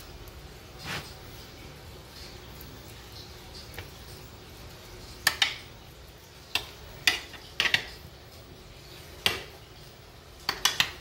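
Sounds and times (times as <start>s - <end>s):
metal utensil clinking on pan: 10.5s - 11.0s.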